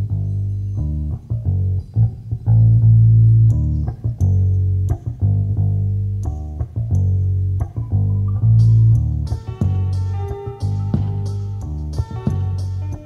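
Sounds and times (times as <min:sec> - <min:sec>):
electric bass low notes: 0:00.0 - 0:13.0
jazz fusion band: 0:07.6 - 0:13.0.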